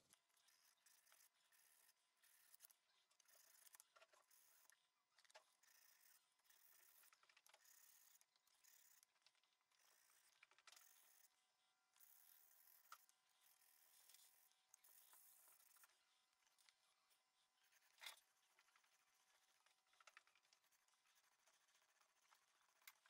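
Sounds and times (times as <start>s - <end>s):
small ticks: 0.0s - 23.0s
paper rubbing scratchily: 17.7s - 23.0s.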